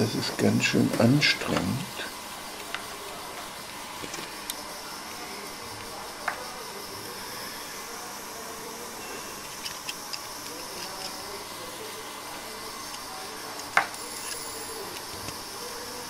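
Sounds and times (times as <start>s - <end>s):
steady background hiss: 0.0s - 16.0s
wire winding handling ticks: 9.4s - 11.3s.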